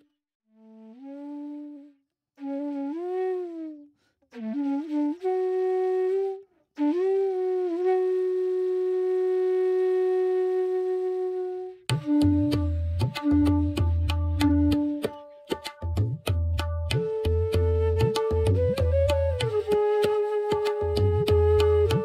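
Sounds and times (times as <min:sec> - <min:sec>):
solo flute melody: 0:00.0 - 0:15.9, 0:16.6 - 0:22.0
percussion strikes: 0:11.9 - 0:18.8.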